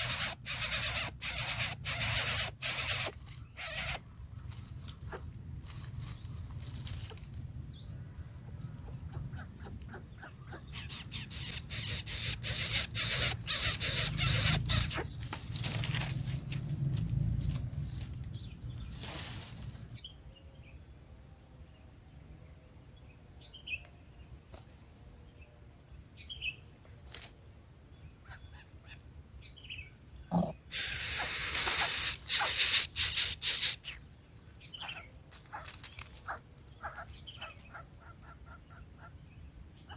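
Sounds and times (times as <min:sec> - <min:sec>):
faint bird chirps: 0:00.0 - 0:04.6, 0:07.7 - 0:15.3
dry fronds and grass rustling: 0:02.8 - 0:08.7, 0:13.1 - 0:20.0, 0:26.9 - 0:27.4, 0:30.7 - 0:37.7.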